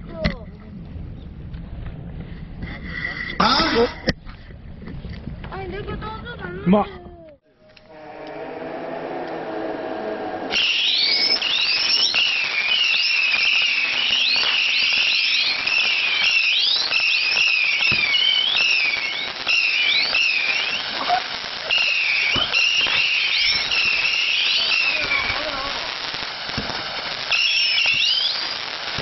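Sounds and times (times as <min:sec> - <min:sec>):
firework crackles and pops: 0:10.5 - 0:29.0
whistling fireworks: 0:10.5 - 0:29.0.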